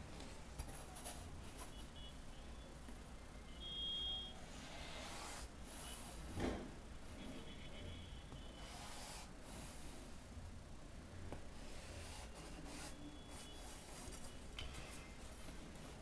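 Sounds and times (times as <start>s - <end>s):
marker scratching on fabric: 4.7s - 6.2s, 8.6s - 10.0s, 11.6s - 14.5s.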